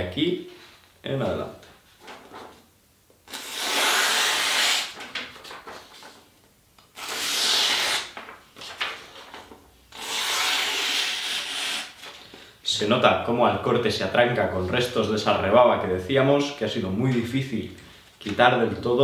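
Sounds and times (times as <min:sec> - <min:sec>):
blade slicing paper: 0:03.3 - 0:05.0, 0:07.0 - 0:08.3, 0:09.9 - 0:12.0.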